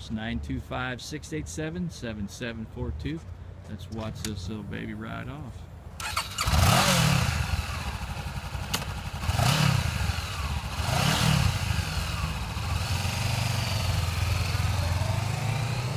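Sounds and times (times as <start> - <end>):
engine revving: 6.0 - 15.9
motorcycle engine idling: 6.1 - 15.5.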